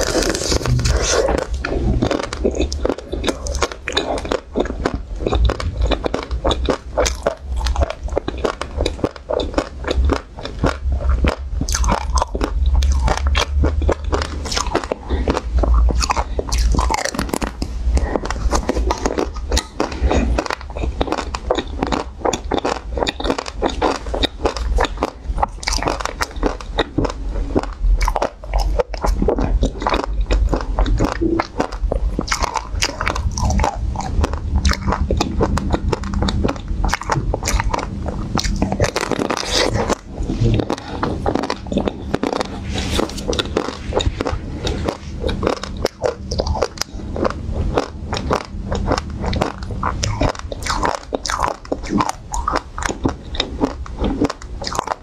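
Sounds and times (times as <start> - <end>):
ice cream coating crunching: 0.0 - 55.0.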